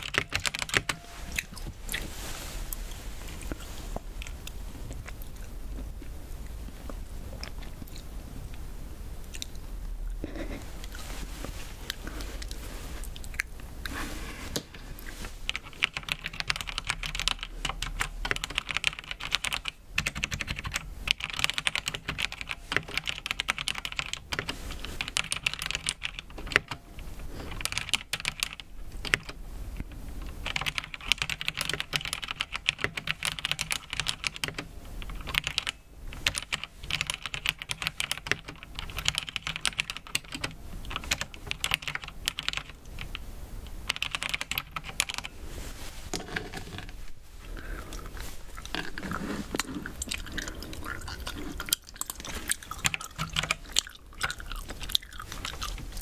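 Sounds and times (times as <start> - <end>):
mechanical keyboard typing: 0.0 - 1.2, 15.5 - 26.8, 27.5 - 29.4, 30.3 - 43.2, 43.8 - 45.3, 51.6 - 55.9.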